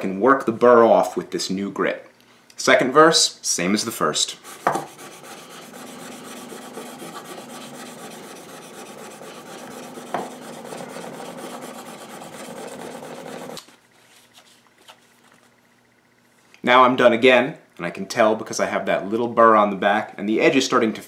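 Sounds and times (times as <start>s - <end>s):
blade scraping on wet sandpaper: 4.4s - 13.6s.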